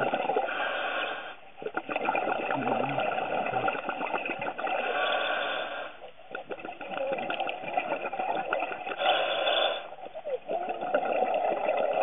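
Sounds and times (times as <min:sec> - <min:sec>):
exhaust bubbling underwater: 0:00.0 - 0:12.0
scuba regulator breathing hiss: 0:00.5 - 0:01.4, 0:04.8 - 0:06.0, 0:09.0 - 0:10.0.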